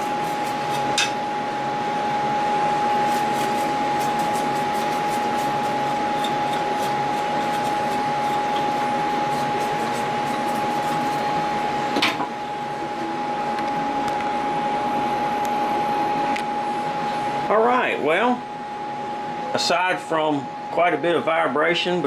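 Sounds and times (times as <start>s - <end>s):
milling machine whine: 0.0s - 21.2s.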